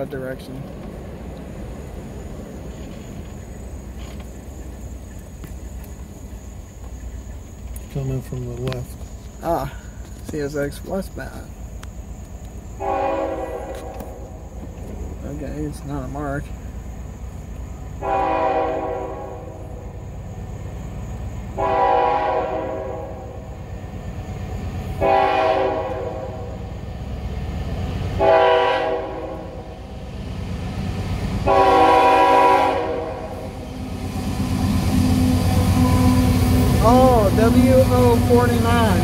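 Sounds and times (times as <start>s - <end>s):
locomotive rumble: 0.0s - 39.0s
locomotive air horn blasts: 12.8s - 14.3s, 18.0s - 19.8s, 21.6s - 23.4s, 25.0s - 26.6s, 28.2s - 29.7s, 31.4s - 33.7s.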